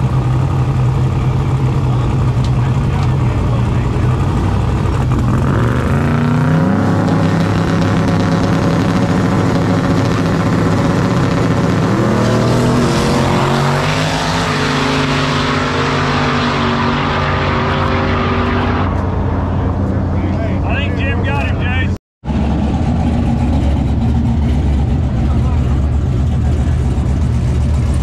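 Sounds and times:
race car engine revving: 0.0s - 21.6s, 22.2s - 28.0s.

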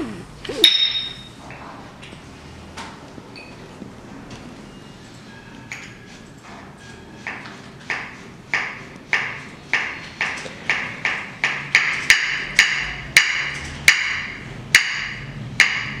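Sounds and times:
ceramic tiles knocking and ringing: 0.6s - 1.3s.

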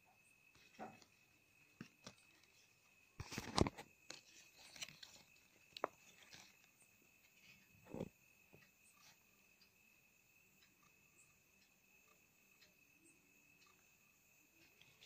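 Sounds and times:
cardstock rustling and tapping: 1.8s - 2.6s, 3.2s - 6.7s.

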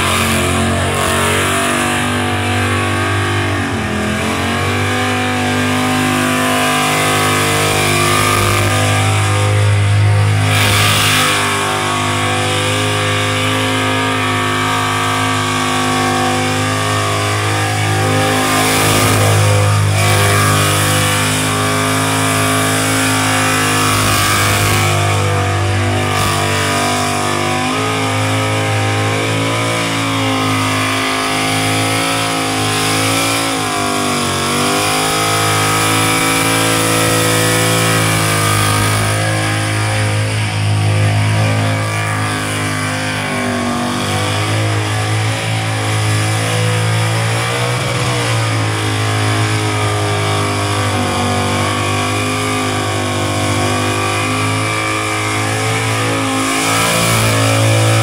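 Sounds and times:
car engine revving high: 0.0s - 58.0s.

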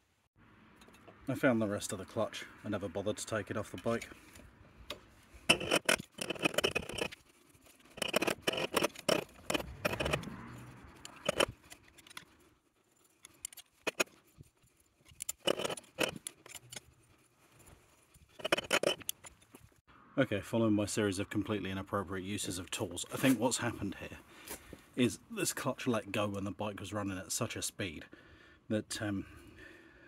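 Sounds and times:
metal tools clinking and scraping: 5.5s - 12.4s, 13.0s - 14.2s, 15.0s - 19.7s.

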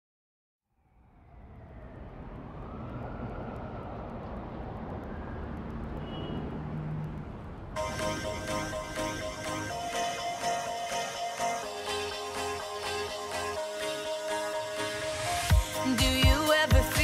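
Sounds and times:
pop song with strings: 7.8s - 17.0s.

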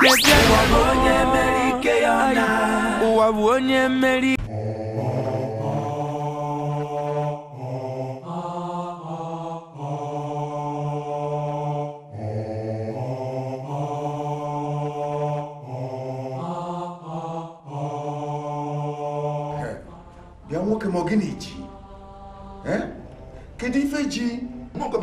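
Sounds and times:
low droning chant: 0.1s - 3.4s.

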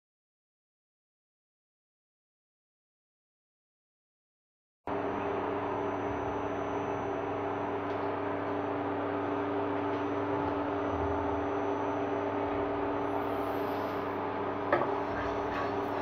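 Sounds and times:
induction cooktop electrical hum: 4.9s - 16.0s.

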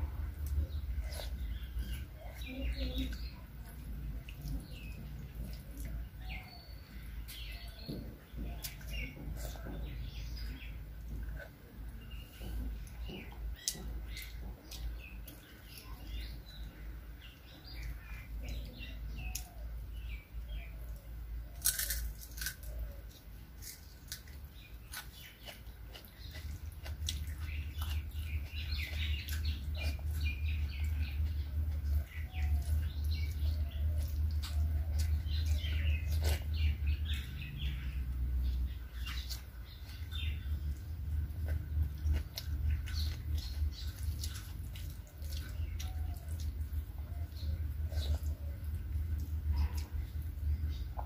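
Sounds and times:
chewing: 0.0s - 51.0s
fingers squishing food: 0.0s - 51.0s
steady low hum: 0.0s - 51.0s.

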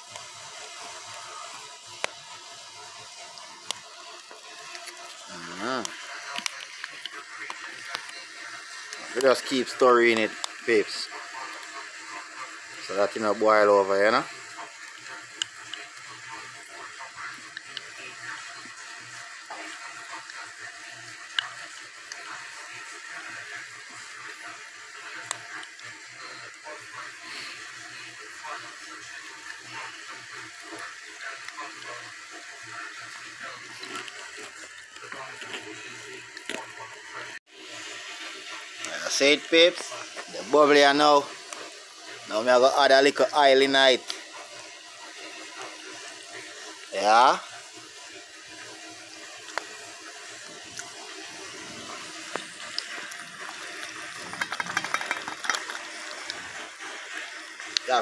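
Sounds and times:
pot bubbling at a boil: 0.0s - 58.0s
fire pops and crackles: 1.6s - 8.3s, 51.8s - 56.6s.

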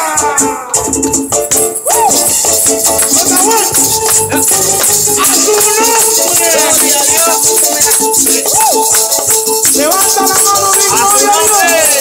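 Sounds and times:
maracas shaking: 0.0s - 12.0s
tambourine shaking: 0.8s - 12.0s.

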